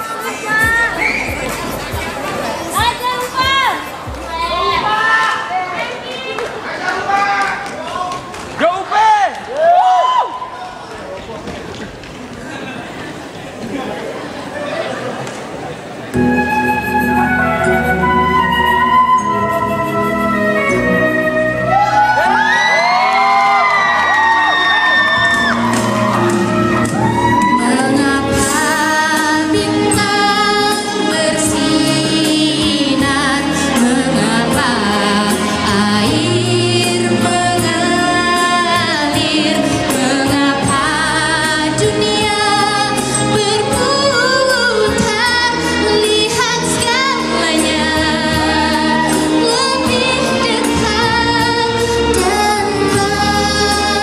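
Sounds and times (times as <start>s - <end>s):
recorded backing track: 16.1s - 54.0s
woman singing pop song: 27.1s - 54.0s.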